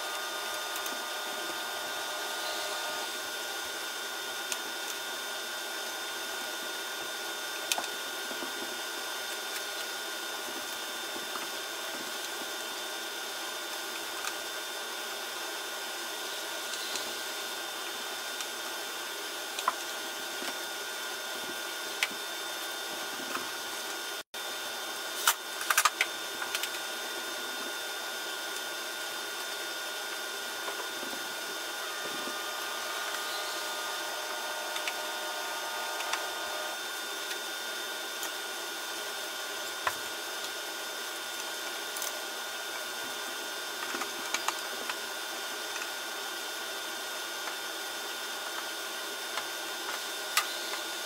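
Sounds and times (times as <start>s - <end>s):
machine whirring drone: 0.0s - 5.0s, 25.2s - 40.4s.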